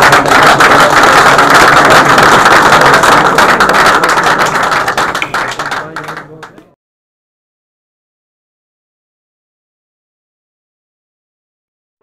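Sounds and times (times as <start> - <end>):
people applauding: 0.0 - 6.8.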